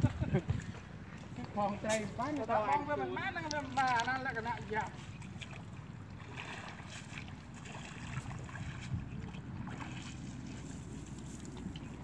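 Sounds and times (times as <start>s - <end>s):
wind rumbling on microphone: 0.0s - 1.4s, 5.2s - 12.0s.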